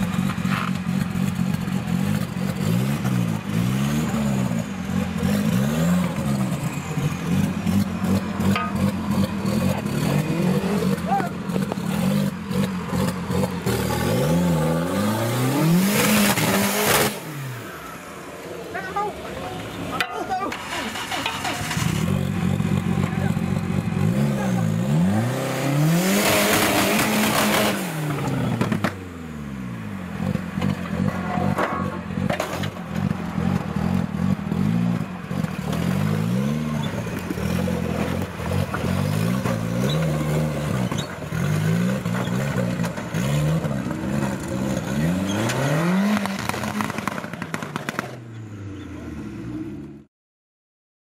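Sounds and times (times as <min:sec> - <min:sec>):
off-road vehicle engine revving: 0:00.0 - 0:50.1
tyres scraping over rocks: 0:35.3 - 0:47.2.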